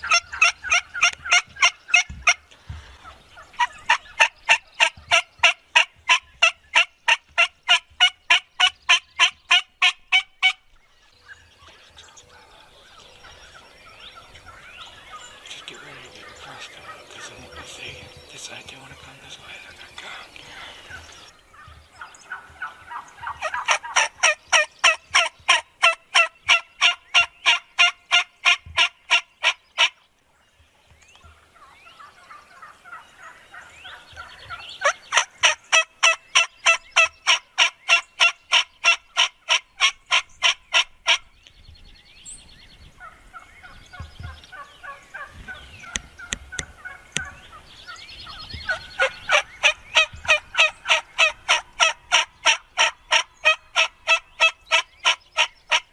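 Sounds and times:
turkey yelping: 0.0s - 2.4s, 3.0s - 10.6s, 21.2s - 30.0s, 34.8s - 41.2s, 45.9s - 47.5s, 48.7s - 55.9s
soft turkey and bird calls: 0.0s - 55.9s.

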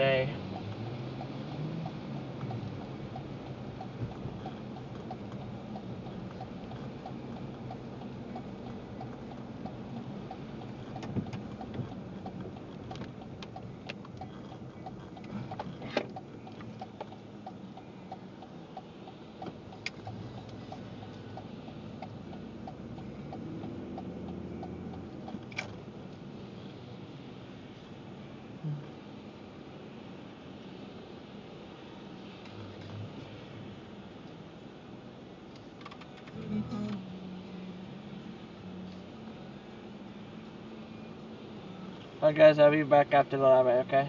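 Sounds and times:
steady ticking: 0.0s - 25.6s
car road and engine noise: 0.0s - 44.0s
rain on car: 0.0s - 44.0s.

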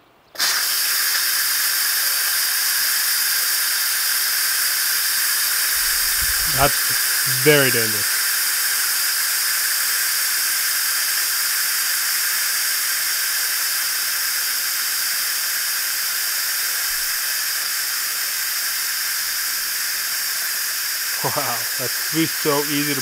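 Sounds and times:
steam hissing from valve: 0.4s - 23.0s.

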